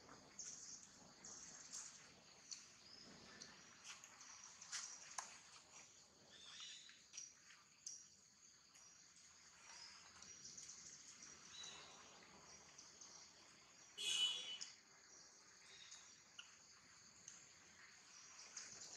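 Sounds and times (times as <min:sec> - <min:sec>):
soft ticks: 0:02.4 - 0:02.7, 0:17.2 - 0:17.4.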